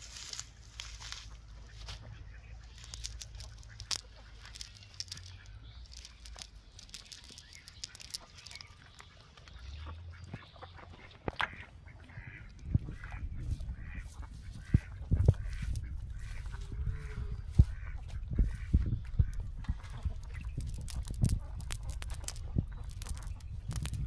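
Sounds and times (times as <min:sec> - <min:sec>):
net sinkers clicking and knocking: 0:02.7 - 0:09.1, 0:18.6 - 0:24.0.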